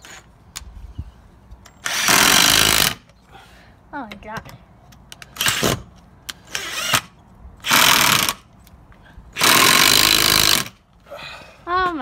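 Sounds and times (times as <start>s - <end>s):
impact driver hammering screw: 9.4s - 10.7s.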